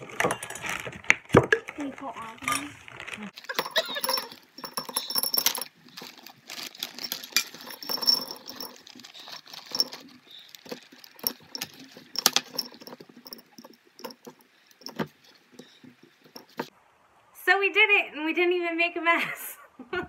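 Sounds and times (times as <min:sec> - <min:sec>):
candies rattling into glass jar: 0:00.2 - 0:16.7
candy pieces clicking: 0:03.4 - 0:15.8.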